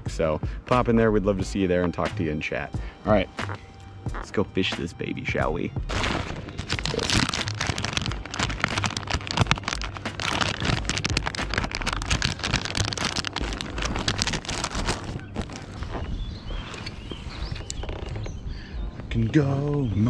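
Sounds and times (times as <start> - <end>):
plastic package crinkling: 5.9 - 16.0.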